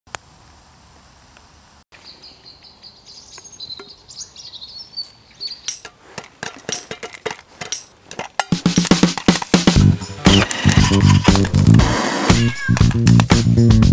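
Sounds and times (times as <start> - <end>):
birds chirping: 2.0 - 11.4.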